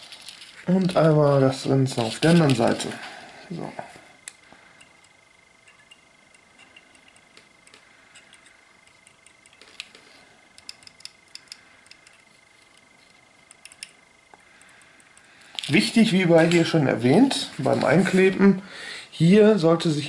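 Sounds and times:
faint high whine: 0.0s - 20.0s
soldering ticks and clicks: 10.5s - 15.3s.

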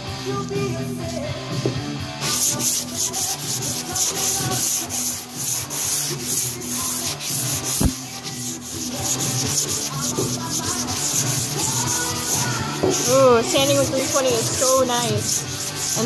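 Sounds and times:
sandpaper scratching strokes: 2.2s - 16.0s
thump: 7.8s - 8.0s.

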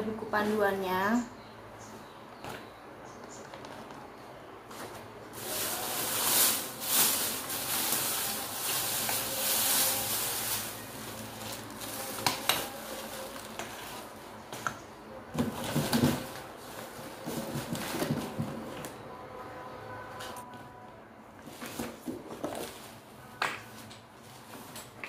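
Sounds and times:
plastic wrapping crinkling: 4.8s - 14.2s.

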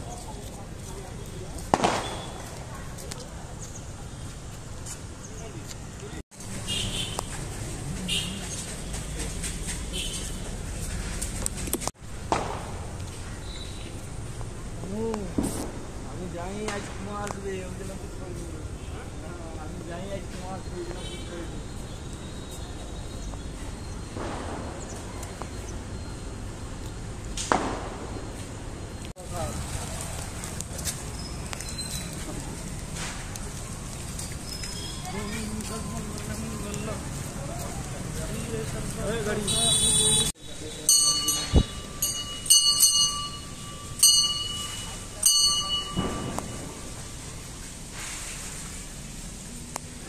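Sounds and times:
metal bell struck: 40.9s - 46.8s
sharp knock: 45.9s - 46.7s.

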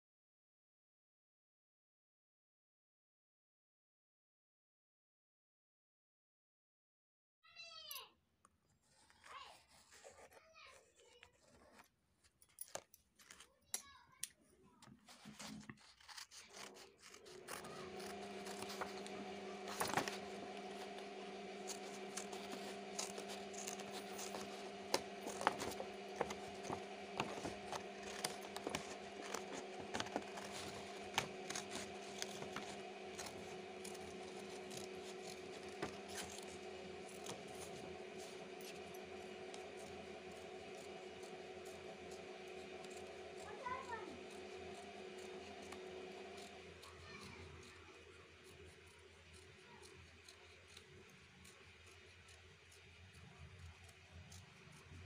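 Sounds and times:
card rubbing: 8.8s - 12.4s, 14.8s - 50.9s
scissors snipping card: 9.0s - 52.5s
steady hum: 16.6s - 49.0s.

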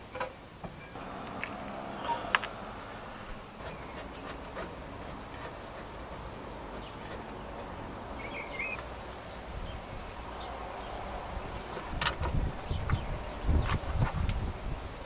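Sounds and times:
wavering bird chirp: 1.0s - 5.3s, 8.2s - 11.8s.

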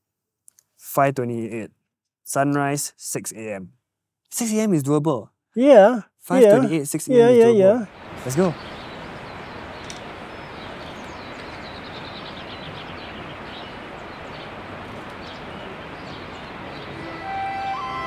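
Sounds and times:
outdoor ambience: 6.4s - 18.0s
songbird trill: 7.9s - 18.0s
soft music: 16.8s - 18.0s.

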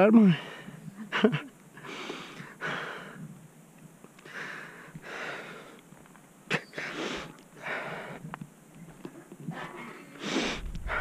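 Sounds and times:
person breathing heavily: 0.2s - 0.9s, 1.8s - 3.3s, 4.2s - 5.8s, 6.8s - 8.3s, 10.2s - 11.0s.

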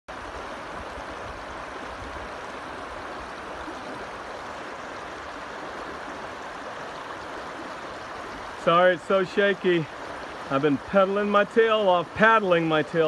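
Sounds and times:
river water rushing over rocks: 0.1s - 13.0s.

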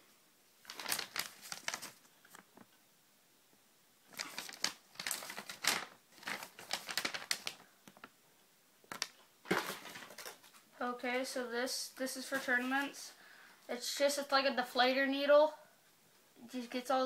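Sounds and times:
paper crinkling: 0.6s - 2.8s, 4.1s - 8.2s, 8.9s - 10.7s.

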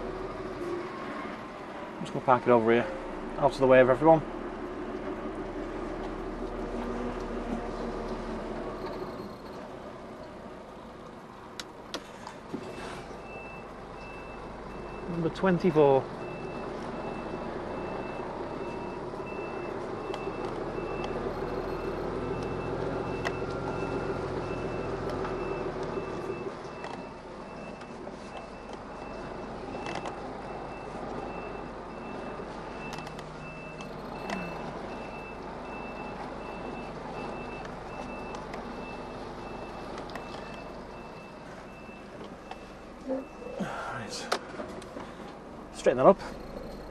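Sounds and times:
diesel truck engine under load: 0.0s - 46.9s
reversing alarm beeping: 16.2s - 43.9s.

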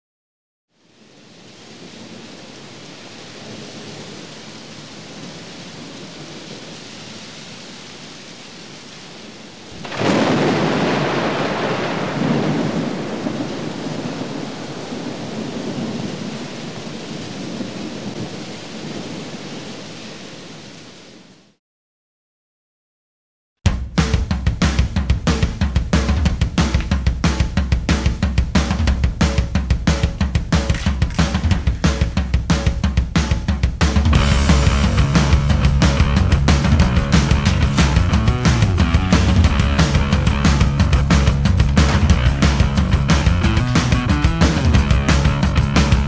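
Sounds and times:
steady rain: 0.7s - 21.6s, 24.0s - 46.0s
thunderclap and rumbling thunder: 9.7s - 19.4s, 25.4s - 46.0s.

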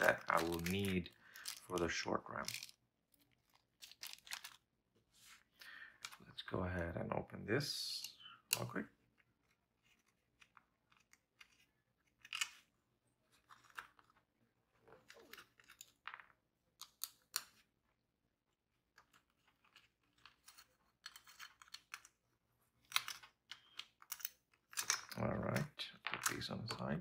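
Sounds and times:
computer parts clicking and crinkling: 0.0s - 4.8s, 18.9s - 27.0s.

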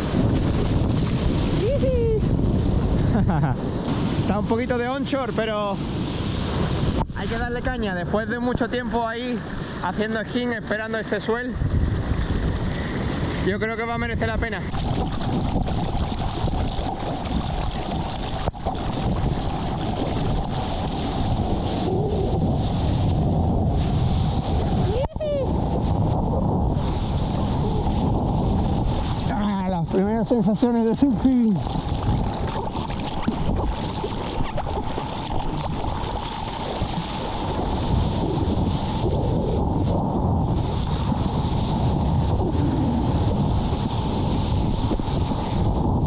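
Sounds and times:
ocean surf rushing: 0.0s - 46.0s
wind buffeting the microphone: 0.0s - 46.0s.

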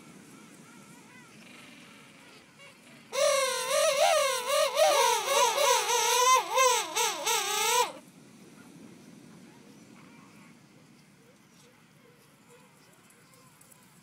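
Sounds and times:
penguin trumpeting call: 3.2s - 8.0s.

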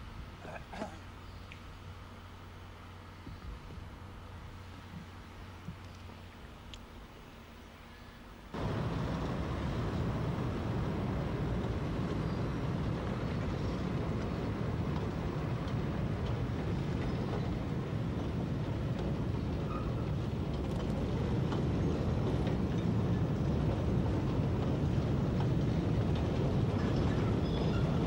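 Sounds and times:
diesel locomotive engine running: 8.5s - 28.0s.

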